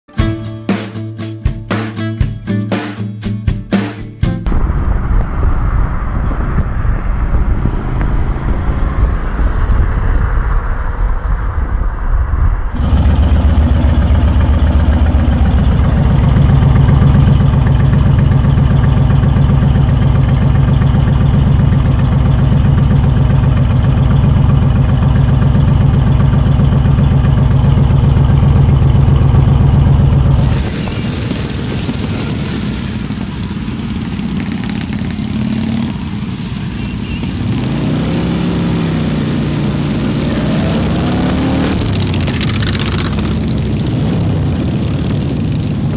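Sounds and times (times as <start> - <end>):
motorcycle engine running: 1.5 - 45.9
wind noise: 4.4 - 13.1, 30.3 - 34.0, 41.7 - 45.9
motorcycle engine idling: 12.8 - 37.4.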